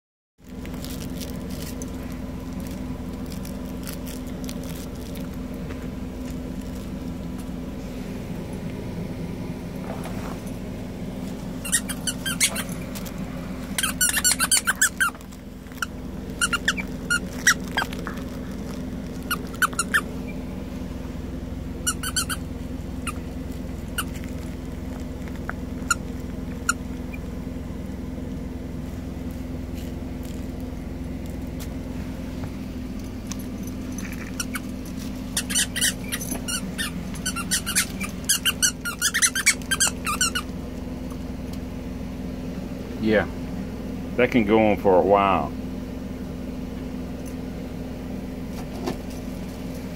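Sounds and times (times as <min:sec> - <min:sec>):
squeaky toy squeaking: 0:11.6 - 0:12.8, 0:13.8 - 0:18.0, 0:19.2 - 0:20.4, 0:21.8 - 0:23.2, 0:34.2 - 0:34.7, 0:35.3 - 0:40.5.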